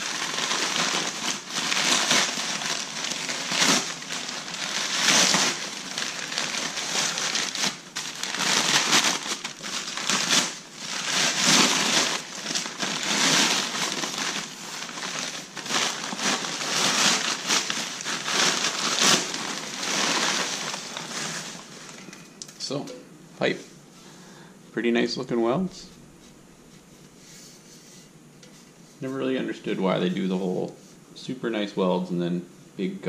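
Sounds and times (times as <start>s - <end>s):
packing paper crinkling: 0.0s - 22.2s.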